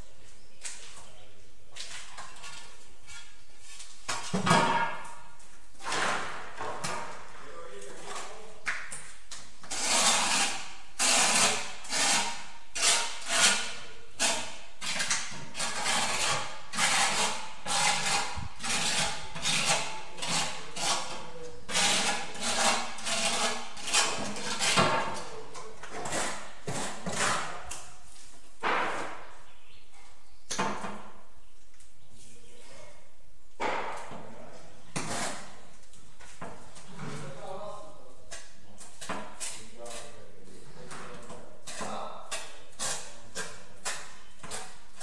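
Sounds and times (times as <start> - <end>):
hand tool scraping mortar: 5.8 - 7.2, 9.6 - 28.0, 34.9 - 37.4, 38.2 - 45.0.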